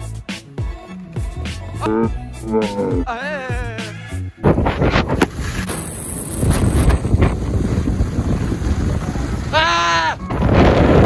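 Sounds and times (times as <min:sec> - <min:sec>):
person yelling: 0:02.6 - 0:03.9, 0:09.5 - 0:10.2
skis running over snow: 0:04.8 - 0:09.5
wind buffeting microphone: 0:06.4 - 0:09.6, 0:10.2 - 0:11.0.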